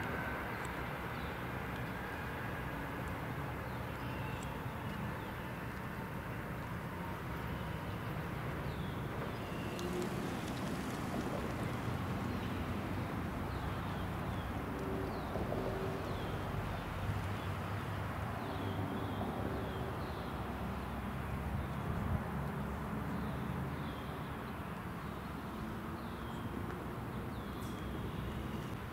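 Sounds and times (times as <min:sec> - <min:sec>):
distant train rumbling: 0:00.0 - 0:23.0
small birds chirping: 0:23.1 - 0:28.8.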